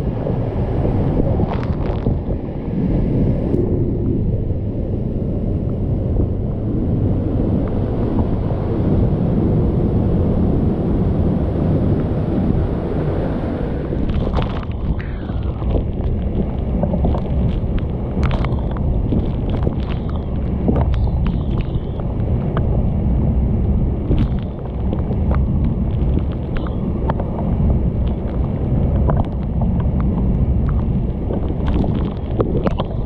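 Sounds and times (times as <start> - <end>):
wind buffeting microphone: 0.0 - 33.0
waterfall roar: 11.8 - 33.0.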